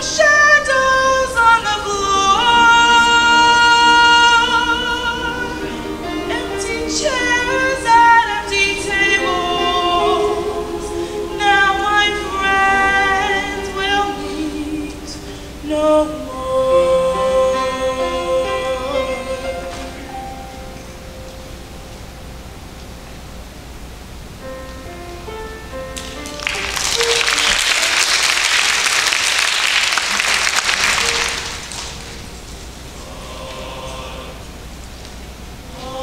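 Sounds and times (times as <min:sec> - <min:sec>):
mixed choir singing: 0:00.0 - 0:20.6, 0:32.8 - 0:34.9, 0:35.6 - 0:36.0.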